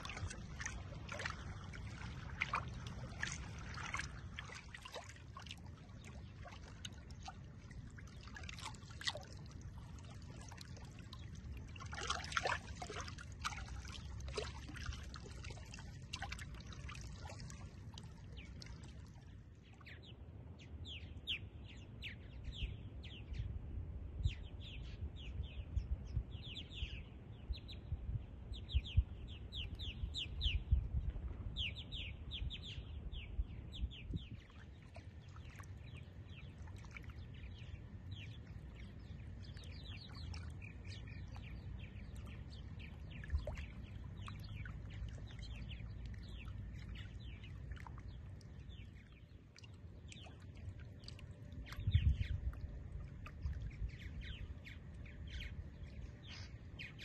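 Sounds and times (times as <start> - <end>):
water lapping and trickling: 0.0 - 23.4, 28.3 - 57.0
low rumble of moving water: 0.0 - 57.0
small birds chirping: 31.6 - 57.0.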